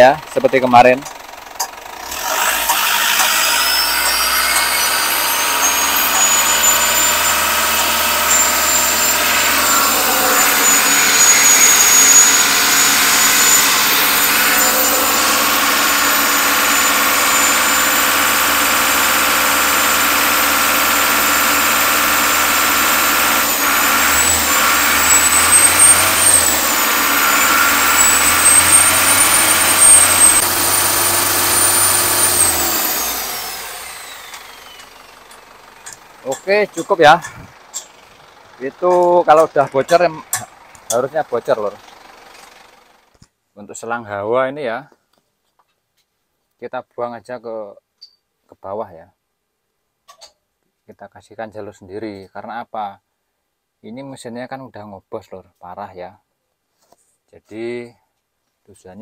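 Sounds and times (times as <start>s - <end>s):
diesel engine at raised revs: 0.0s - 43.2s
high turbocharger whistle: 2.0s - 36.0s.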